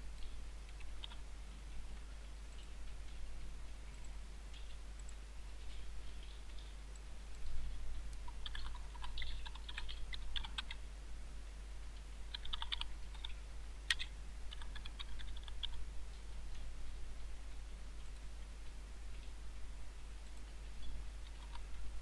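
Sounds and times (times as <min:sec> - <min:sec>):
low steady hum: 0:00.0 - 0:22.0
typing on computer keyboard: 0:08.3 - 0:10.8, 0:12.3 - 0:15.8.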